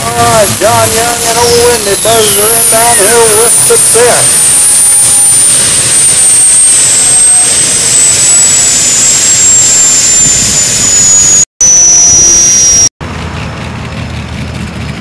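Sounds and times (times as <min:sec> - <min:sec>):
tractor engine running loud: 0:00.0 - 0:03.4, 0:13.0 - 0:15.0
high whine: 0:00.0 - 0:13.0.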